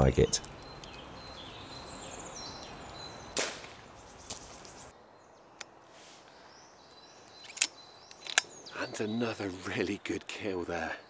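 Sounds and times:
air rifle shot: 3.4s - 3.8s.

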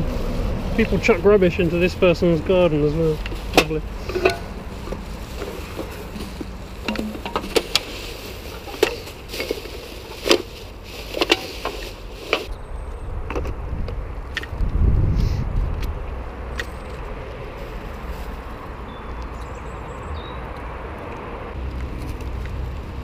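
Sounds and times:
items clattering into plastic bag: 3.0s - 12.5s.

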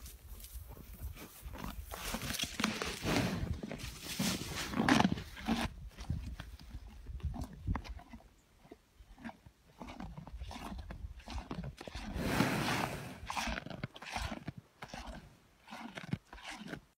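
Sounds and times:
cow chewing corn: 0.0s - 17.0s
cow breath rush: 0.4s - 7.5s, 10.0s - 16.0s.

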